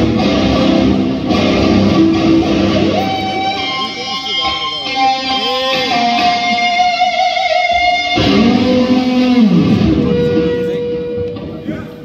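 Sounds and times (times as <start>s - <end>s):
electric guitar bending notes: 0.0s - 12.0s.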